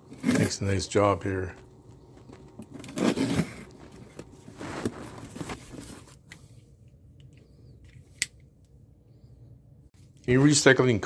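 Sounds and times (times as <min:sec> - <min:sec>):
cardboard scraping and rustling: 0:02.3 - 0:06.2.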